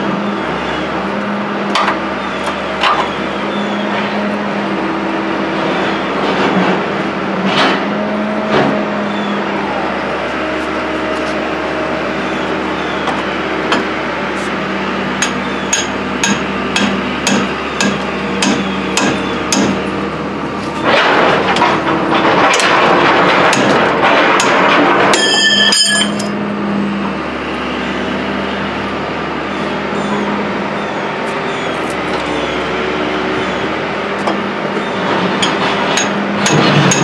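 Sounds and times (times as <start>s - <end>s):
loud rattling clatter: 20.6s - 26.4s, 35.0s - 37.0s
ringing metal clang: 25.1s - 26.4s.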